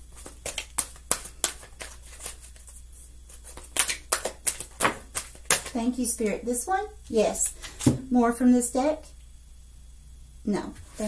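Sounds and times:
cards shuffling and snapping: 0:00.1 - 0:05.8.

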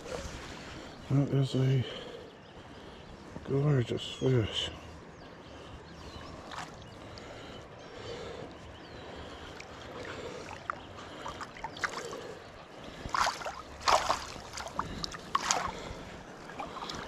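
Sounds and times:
water lapping against a kayak: 0:00.0 - 0:01.1, 0:04.9 - 0:17.0
fish thrashing and splashing: 0:10.0 - 0:12.3, 0:12.9 - 0:17.0.

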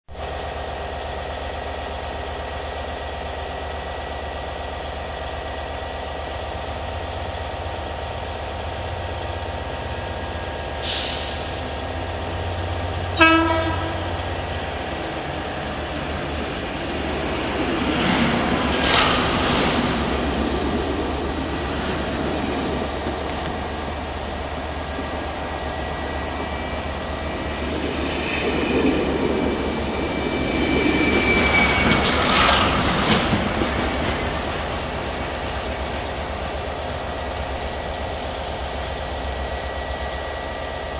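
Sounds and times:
train passing by: 0:00.1 - 0:40.9
diesel locomotive idling: 0:00.2 - 0:40.9
locomotive horn blast: 0:13.1 - 0:14.2.

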